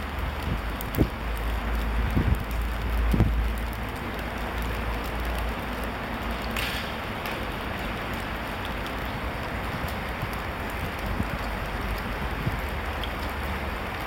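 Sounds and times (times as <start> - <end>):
steady rain-like hiss: 0.0 - 14.0.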